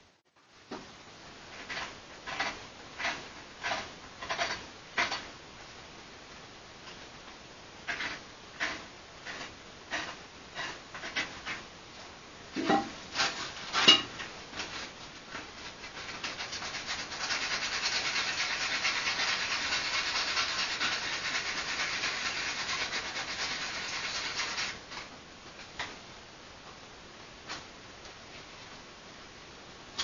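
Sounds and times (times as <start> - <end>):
knife rasping on wood: 1.7 - 4.6, 7.9 - 11.6, 15.9 - 24.8.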